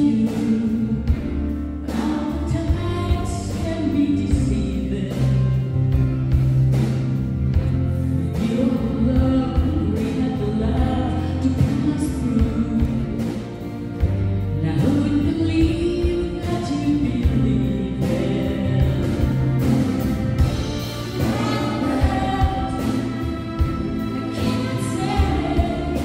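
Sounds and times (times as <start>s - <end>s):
woman singing: 0.0s - 6.0s, 8.1s - 26.0s
live band playing: 0.0s - 26.0s.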